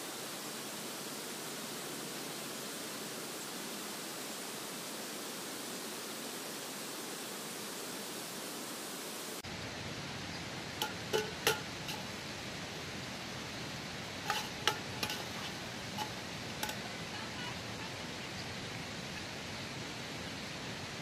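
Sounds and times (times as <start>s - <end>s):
stream rushing: 0.1s - 21.0s
kitchenware clinking: 10.8s - 12.1s, 14.2s - 17.0s.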